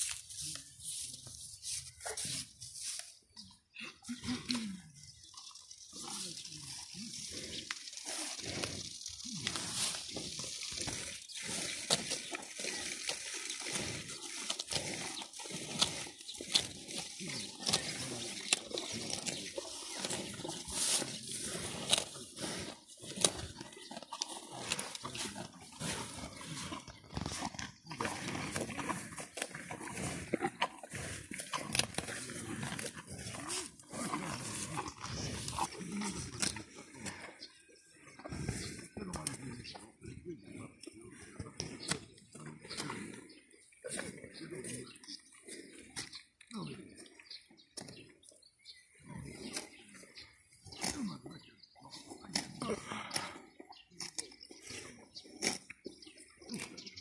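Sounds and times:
cows tearing and chewing grass: 0.0 - 57.0.

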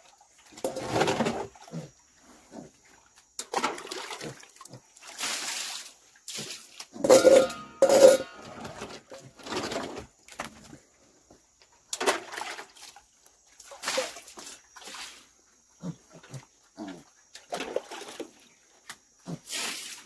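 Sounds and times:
low pig grunts: 15.8 - 17.1.

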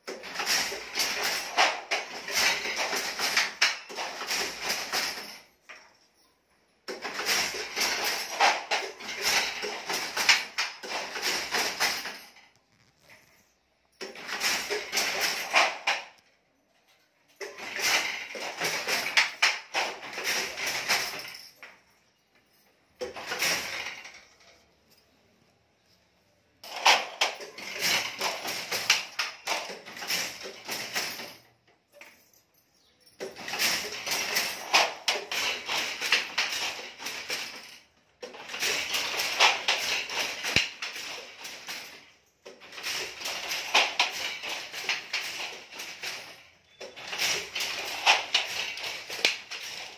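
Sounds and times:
handloom shuttle and beater clacking: 0.0 - 5.9, 6.8 - 13.1, 14.0 - 16.3, 17.4 - 21.8, 23.0 - 24.6, 26.6 - 32.2, 33.2 - 49.9.

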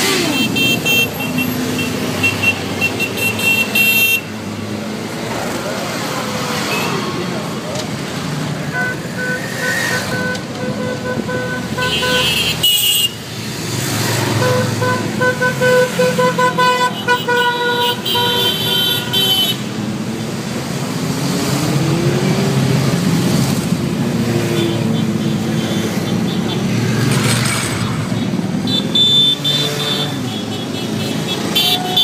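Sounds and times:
motorcycle engine revving: 0.0 - 2.2
vehicle horn: 0.0 - 4.3, 8.7 - 13.2, 14.3 - 19.7, 28.6 - 32.0.

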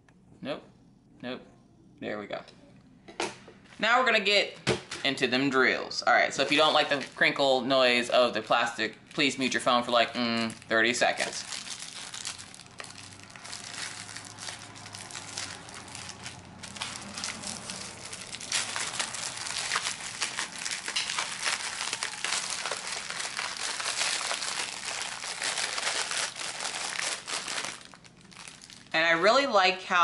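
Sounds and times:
plastic wrapping crinkling: 6.4 - 29.0.

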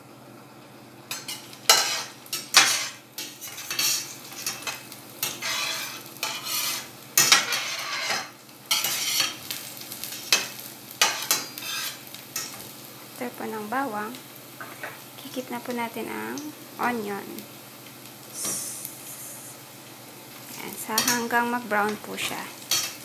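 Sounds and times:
garlic frying in oil: 0.6 - 23.0
spatula scraping a metal pan: 1.2 - 9.4, 11.0 - 12.0.

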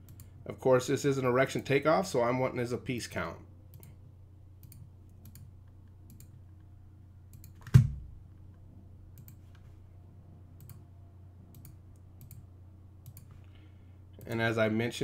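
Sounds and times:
faint low hum: 0.0 - 15.0
computer mouse clicking: 4.6 - 6.7, 7.3 - 7.8, 9.2 - 9.6, 10.6 - 10.8, 11.5 - 13.4
loud thump: 7.7 - 8.1.

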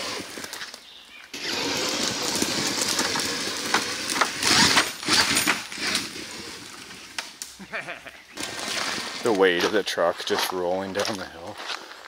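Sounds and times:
twigs crackling and snapping: 0.3 - 6.1
toy truck drivetrain whirring: 1.4 - 7.1.

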